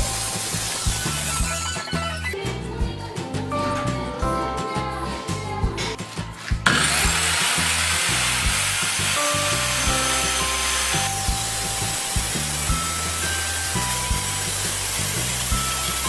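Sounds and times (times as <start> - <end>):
background music with beat: 0.0 - 16.0
circular saw cutting plywood: 6.6 - 16.0.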